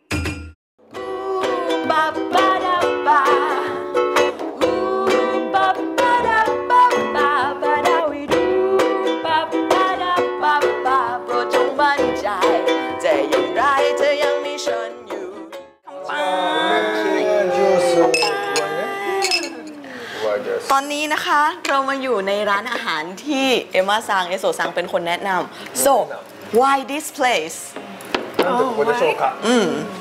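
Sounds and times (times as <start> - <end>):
plucked string music: 0.9 - 17.0.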